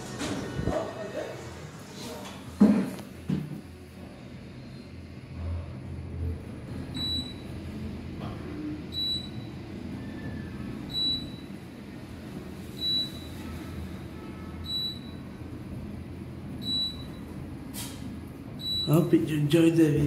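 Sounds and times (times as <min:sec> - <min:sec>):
elevator low rumble: 0:03.7 - 0:14.0, 0:14.6 - 0:20.0.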